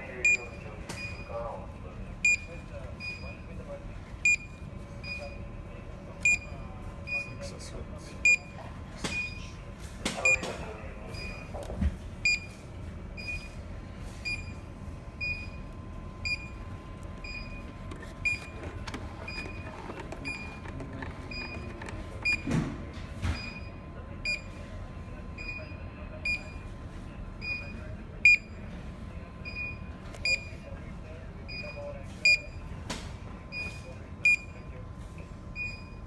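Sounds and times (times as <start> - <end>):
electronic alarm beeping: 0.2 - 1.4, 2.2 - 3.6, 4.2 - 5.5, 6.2 - 7.5, 8.2 - 9.6, 10.2 - 11.6, 12.2 - 12.6, 13.2 - 13.6, 14.2 - 22.5, 23.3 - 24.6, 25.3 - 26.7, 27.4 - 28.6, 29.4 - 30.7, 31.5 - 32.6, 33.5 - 34.7, 35.6 - 36.0.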